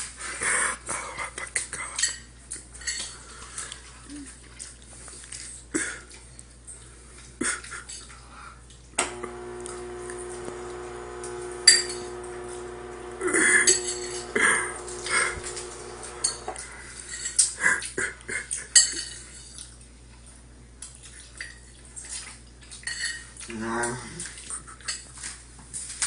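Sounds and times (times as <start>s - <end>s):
steady low hum: 9.0s - 16.8s.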